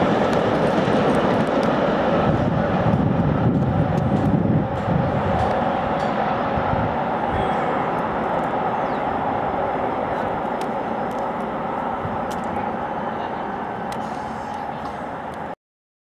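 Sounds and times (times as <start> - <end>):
steam train rumbling: 0.0 - 15.6.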